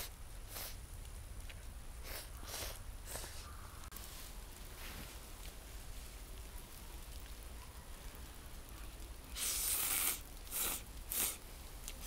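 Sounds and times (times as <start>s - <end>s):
person slurping noodles: 9.4s - 11.4s.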